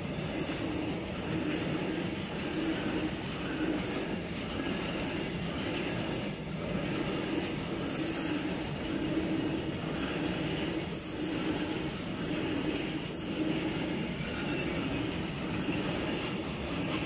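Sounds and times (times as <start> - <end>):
freight train wheels rumbling on rail: 0.0 - 17.0.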